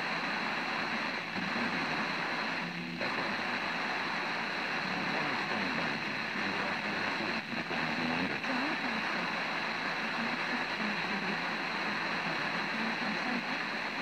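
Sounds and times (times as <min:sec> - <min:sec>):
faint wavering radio audio: 0:00.0 - 0:14.0
radio static hiss: 0:00.0 - 0:14.0.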